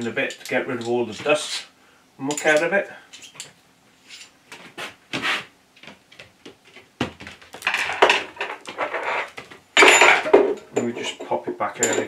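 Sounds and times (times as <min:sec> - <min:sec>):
metal parts knocking: 0:09.8 - 0:12.0.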